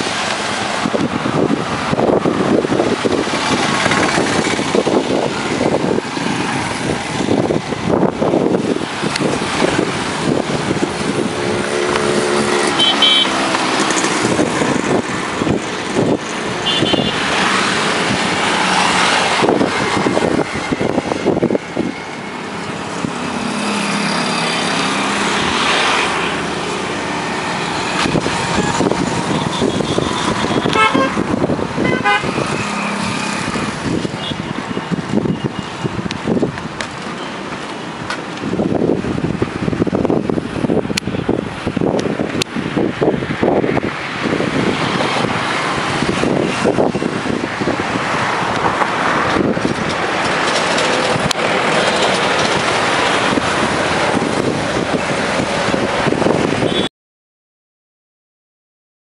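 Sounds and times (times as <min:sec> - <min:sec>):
road traffic passing: 0:00.0 - 0:56.9
vehicle horns tooting: 0:12.6 - 0:13.5, 0:16.6 - 0:17.3, 0:28.0 - 0:33.1, 0:56.6 - 0:56.9.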